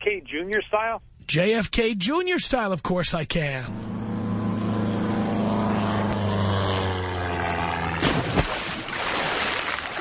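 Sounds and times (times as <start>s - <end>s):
propeller airplane engine: 3.0s - 8.8s.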